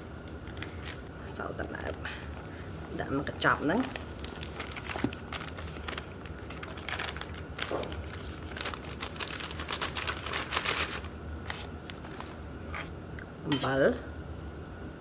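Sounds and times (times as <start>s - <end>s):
plastic bag crinkling: 0.4s - 1.2s, 3.2s - 12.4s.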